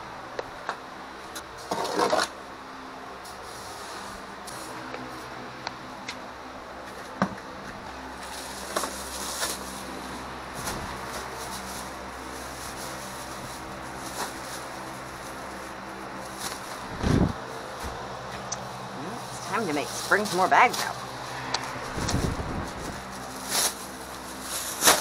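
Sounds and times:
steady low hum: 0:00.0 - 0:25.0
plastic bag clicks and rustles: 0:21.9 - 0:25.0.

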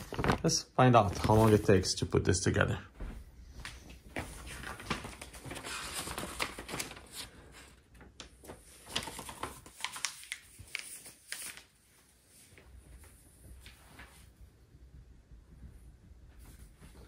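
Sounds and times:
wrapping rustling and crinkling: 0:00.0 - 0:01.8, 0:04.1 - 0:14.3.

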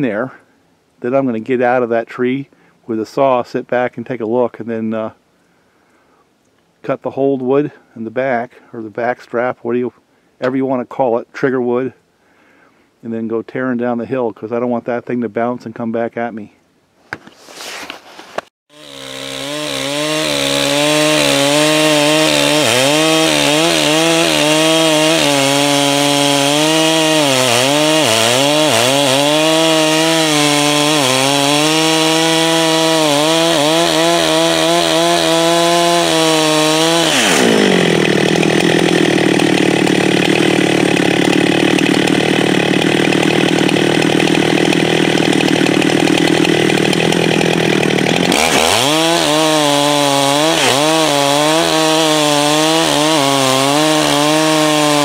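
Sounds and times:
chainsaw cutting wood: 0:18.7 - 0:55.0.

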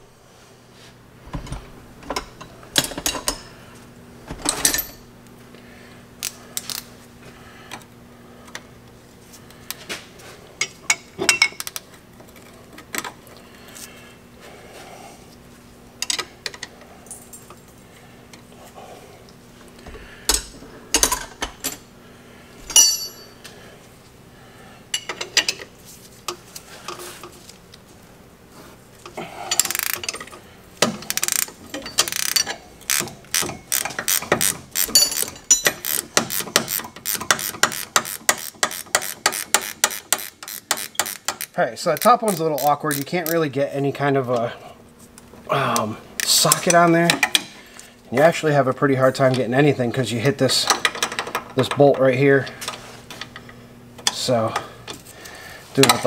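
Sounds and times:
steady low hum: 0:00.0 - 0:56.0
tools clanking against steel: 0:01.4 - 0:03.5, 0:04.3 - 0:05.1, 0:22.7 - 0:23.4, 0:29.5 - 0:43.4.

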